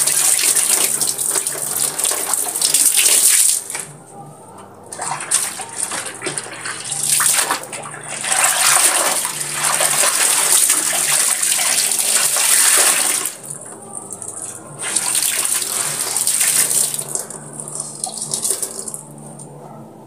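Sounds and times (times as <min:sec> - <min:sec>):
water splashing and sloshing: 0:04.9 - 0:13.5, 0:14.8 - 0:19.0.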